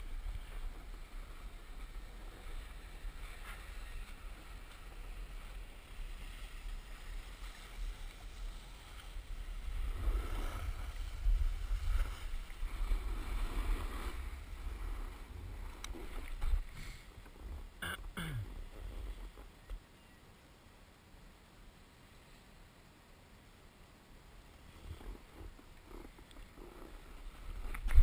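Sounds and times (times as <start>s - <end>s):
skis scraping over snow: 0.0s - 17.8s, 24.4s - 28.0s.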